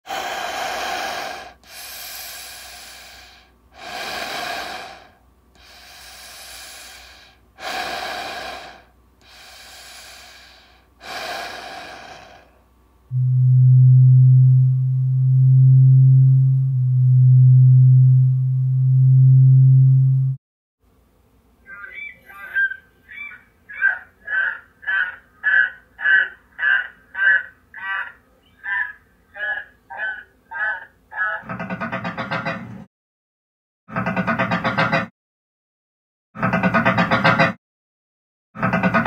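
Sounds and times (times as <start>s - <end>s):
heavy raspy breathing: 0.1s - 12.6s
deep loud steady hum: 0.1s - 20.4s.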